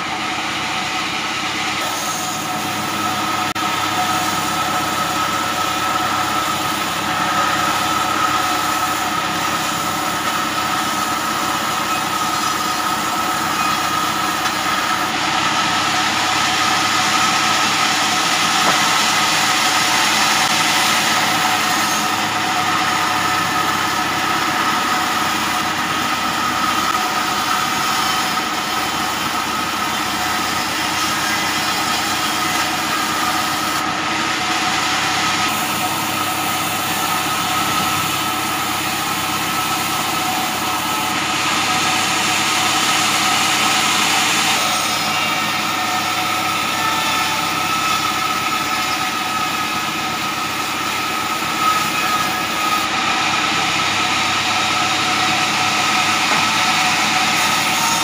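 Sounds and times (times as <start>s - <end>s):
band saw machine whine: 0.0s - 58.0s
saw blade cutting hiss: 1.8s - 2.9s.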